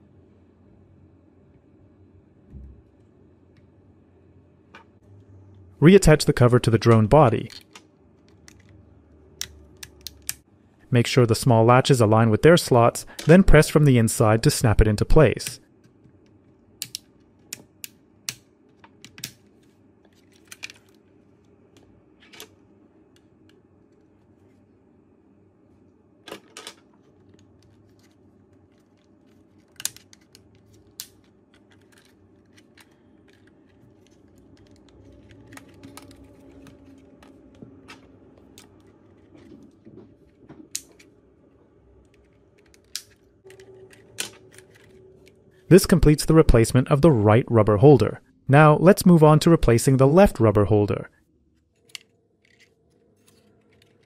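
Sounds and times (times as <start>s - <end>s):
plastic parts clicking and snapping: 7.4s - 8.8s, 9.4s - 10.4s, 15.4s - 19.5s, 20.1s - 21.0s, 26.3s - 41.1s, 42.0s - 45.4s, 51.7s - 54.0s
faint low handling noise: 18.5s - 48.2s.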